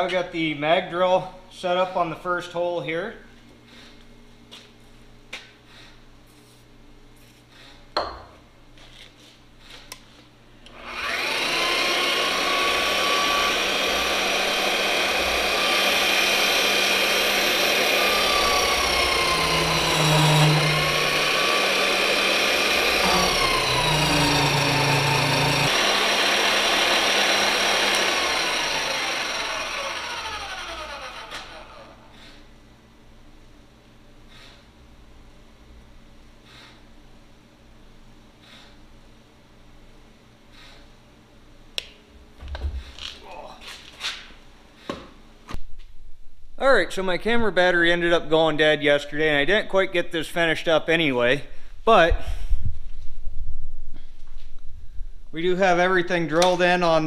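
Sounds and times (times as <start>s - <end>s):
magnetic drill motor whining: 10.7s - 32.0s.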